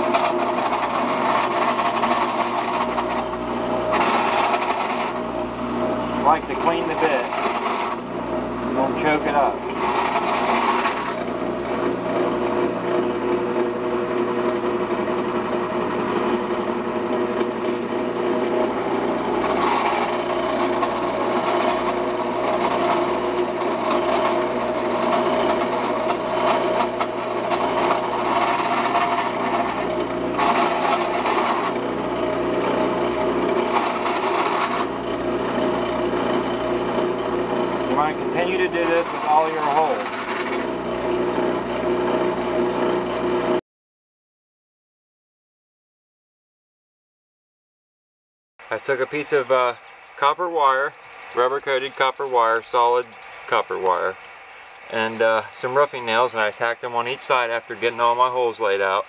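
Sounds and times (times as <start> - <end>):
drill bit cutting into wood: 0.0 - 5.4, 6.2 - 43.5
drill press motor hum: 0.0 - 43.6.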